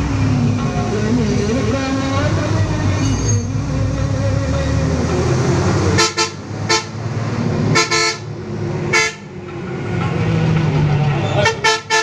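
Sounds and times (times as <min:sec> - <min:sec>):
bus engine low hum: 0:00.0 - 0:12.0
bus horn short toots: 0:06.0 - 0:06.9, 0:07.7 - 0:08.2, 0:08.9 - 0:09.3, 0:11.4 - 0:12.0.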